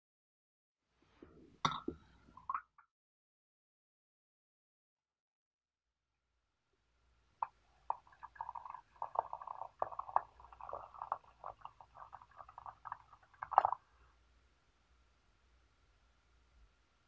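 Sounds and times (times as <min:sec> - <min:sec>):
water pouring into a teapot: 0:07.4 - 0:14.0.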